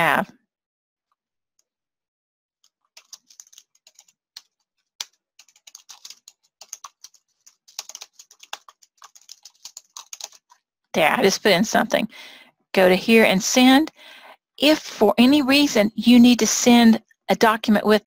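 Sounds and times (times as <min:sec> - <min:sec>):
keyboard typing clicks: 0:03.0 - 0:10.5.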